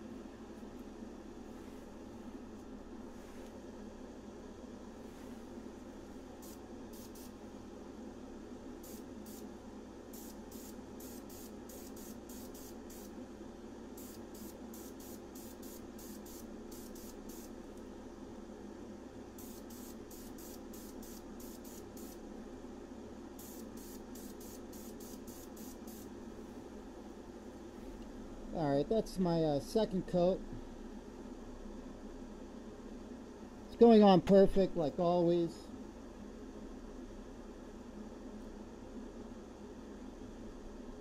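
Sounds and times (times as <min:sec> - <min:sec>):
steady hum: 0:00.0 - 0:41.0
spray paint can bursts: 0:10.2 - 0:13.1, 0:14.0 - 0:17.5, 0:19.4 - 0:22.2, 0:23.4 - 0:26.1.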